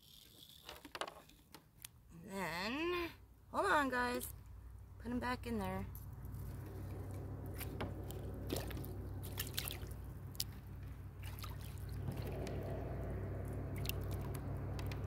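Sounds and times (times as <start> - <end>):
water dripping and splashing: 6.4 - 15.0.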